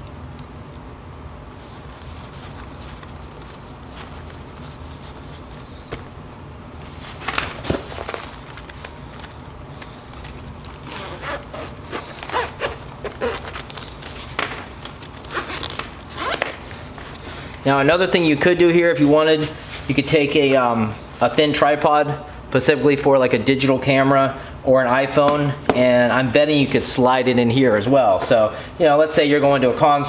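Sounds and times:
gear rustling and clicking: 7.2s - 17.6s
case zipping: 10.6s - 16.6s.

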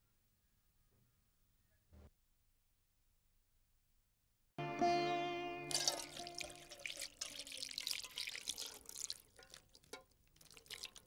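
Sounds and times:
held musical chord: 4.6s - 6.6s
milk pouring into saucepan: 5.7s - 11.0s.

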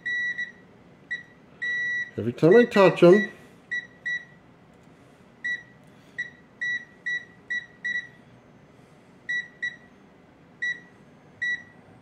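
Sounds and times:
multimeter short high beeps: 0.0s - 4.3s.

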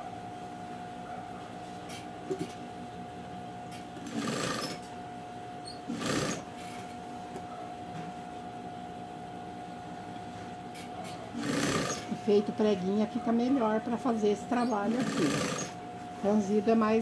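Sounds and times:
sewing machine running: 4.0s - 4.8s, 5.9s - 6.4s, 11.4s - 12.1s, 14.8s - 15.8s.

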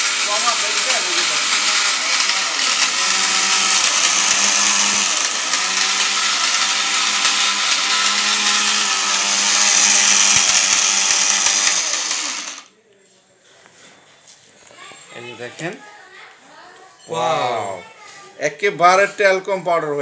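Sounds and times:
mixer grinder grinding brick: 0.0s - 12.7s.

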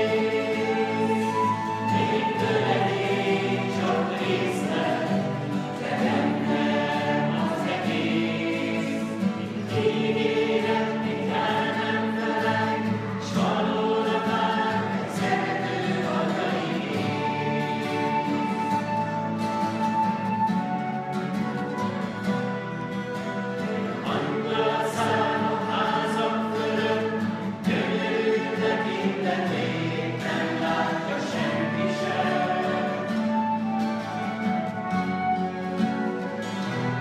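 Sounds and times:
group of voices singing: 0.0s - 20.4s, 22.2s - 37.0s
acoustic guitar: 0.0s - 37.0s.

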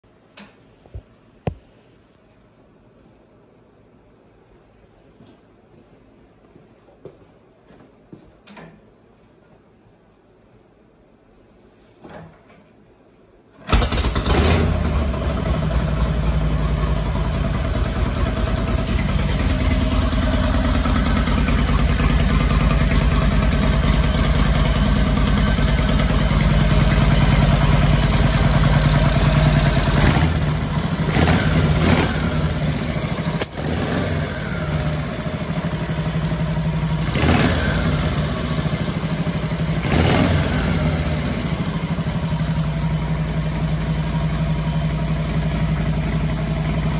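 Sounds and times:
motorcycle engine kick-started: 13.6s - 46.9s
motorcycle engine running: 13.7s - 46.9s.

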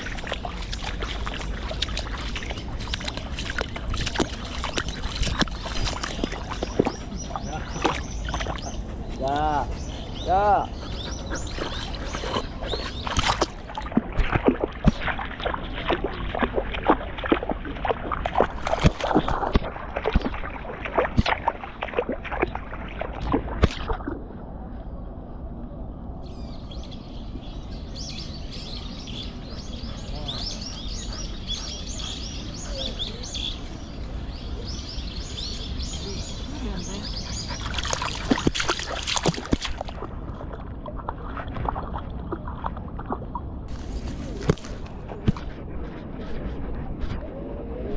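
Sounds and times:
splashing and knocking: 0.0s - 8.6s, 11.5s - 24.2s, 37.6s - 45.5s
water trickling: 0.0s - 9.4s
small birds chirping: 0.0s - 14.8s, 26.3s - 39.8s.

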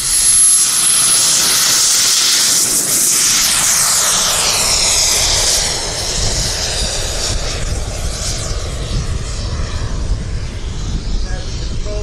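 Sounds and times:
jet engine whine: 0.0s - 12.0s.

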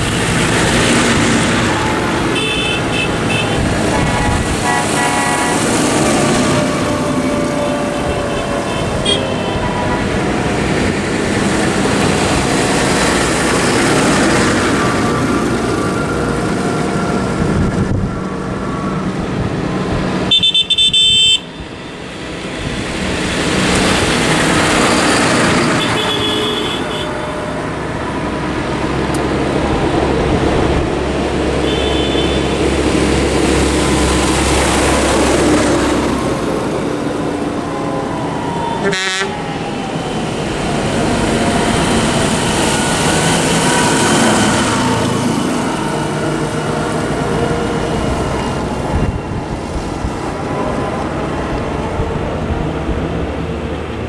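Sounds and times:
tractors driving past: 0.0s - 54.0s
tractor horns tooting: 1.7s - 10.6s, 20.3s - 21.6s, 25.5s - 27.8s, 31.5s - 32.7s, 38.7s - 39.4s.

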